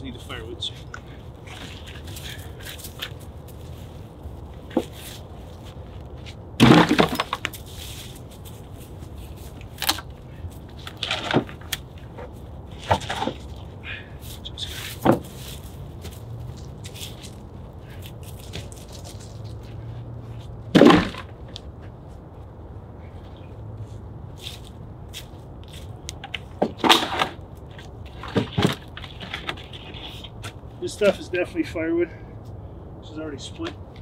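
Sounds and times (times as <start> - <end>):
wooden logs knocking and clattering: 4.6 - 5.1, 6.2 - 7.7, 9.6 - 13.7, 14.8 - 19.9, 20.6 - 22.0, 26.1 - 30.6.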